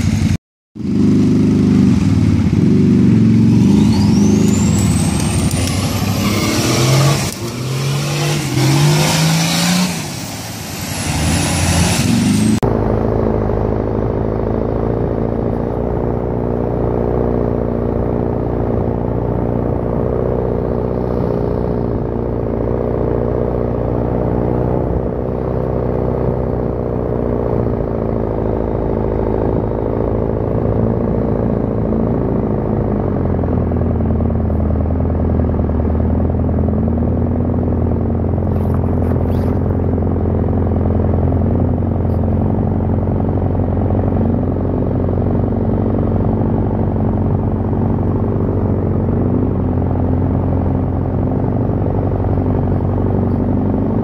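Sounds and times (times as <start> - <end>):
off-road engine revving: 0.0 - 54.0
muffled engine drone: 12.0 - 54.0.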